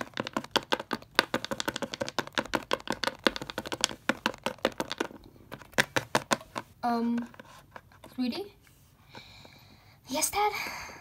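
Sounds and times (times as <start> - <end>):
plastic figurine tapping on table: 0.0 - 6.6.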